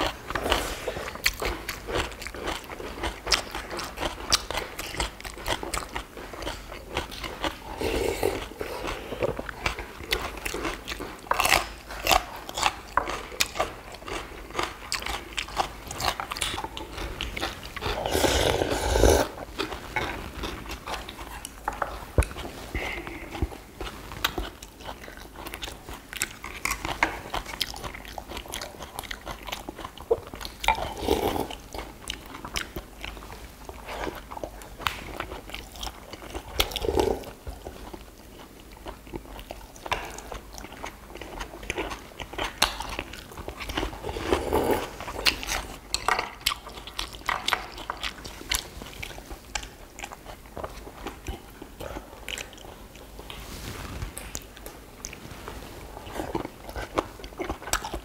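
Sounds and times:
people chewing: 0:00.0 - 0:58.0
loud mouth sounds: 0:18.0 - 0:19.4.

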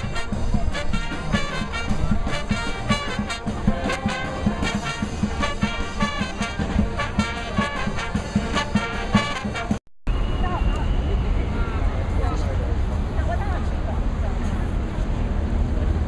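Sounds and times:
brass band playing: 0:00.0 - 0:09.8.

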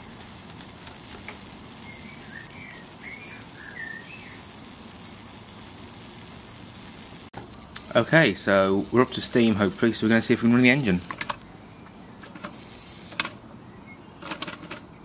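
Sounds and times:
steam engine sizzling: 0:00.0 - 0:13.3
bird chirping: 0:01.8 - 0:04.6.

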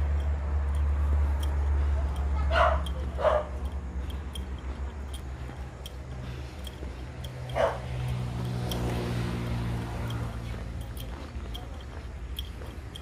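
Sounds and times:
steady low rumble: 0:00.0 - 0:13.0
dog barking: 0:02.4 - 0:03.7, 0:07.5 - 0:07.9.

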